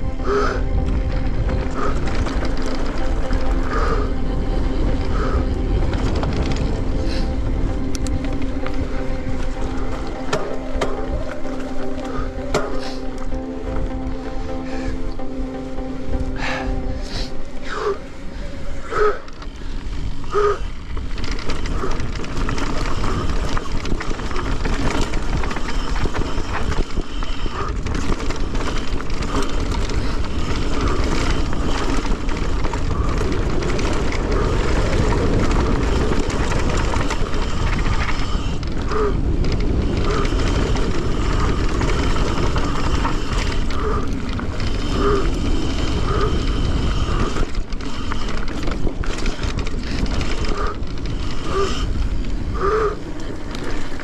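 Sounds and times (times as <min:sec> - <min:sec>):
bike rattling: 0:00.0 - 0:54.0
wind and tyre noise: 0:00.0 - 0:54.0.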